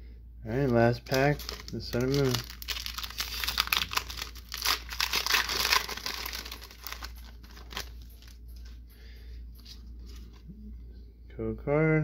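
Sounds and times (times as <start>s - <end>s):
foil wrapper tearing and crinkling: 0.6s - 8.4s.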